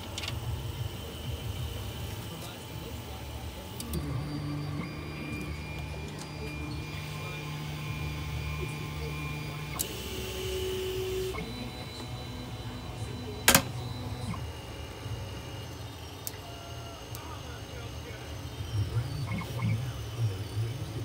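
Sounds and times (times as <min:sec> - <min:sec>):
stepper motors whining: 0:00.0 - 0:21.0
sharp click: 0:13.5 - 0:13.8.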